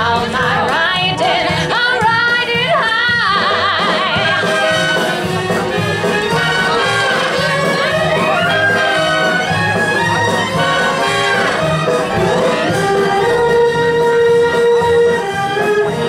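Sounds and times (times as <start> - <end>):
woman singing with vibrato: 0.0 - 5.0
symphony orchestra with brass: 3.0 - 16.0.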